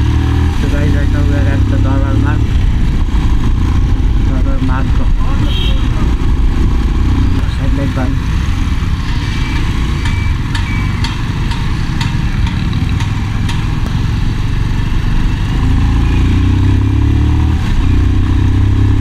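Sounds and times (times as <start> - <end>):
motorcycle engine running: 0.0 - 19.0
sharp ticks: 9.6 - 14.0.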